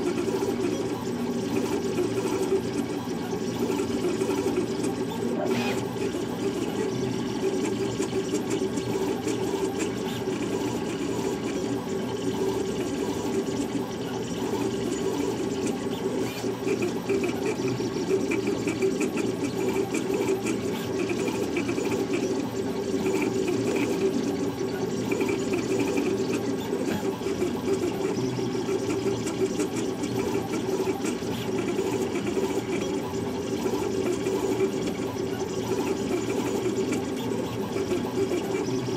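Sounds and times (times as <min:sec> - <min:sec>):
printer motors whirring: 0:00.0 - 0:38.9.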